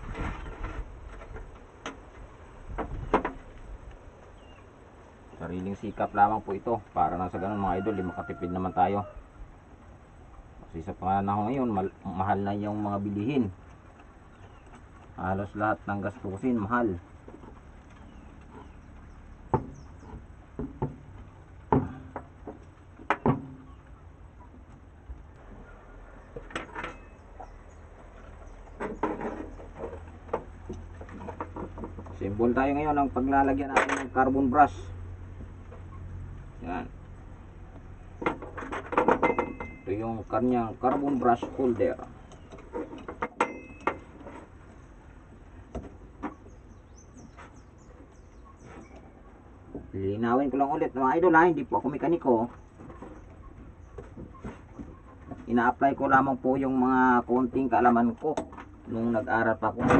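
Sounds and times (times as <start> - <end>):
birds chirping: 0.0 - 59.7
metal housing knocking on wood: 19.5 - 19.9, 20.5 - 23.7, 38.2 - 39.9.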